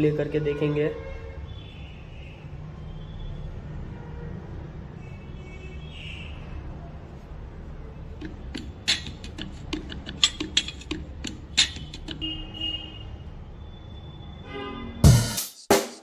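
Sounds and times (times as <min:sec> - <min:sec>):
irregular sharp clicks and ticks: 0:08.2 - 0:12.3.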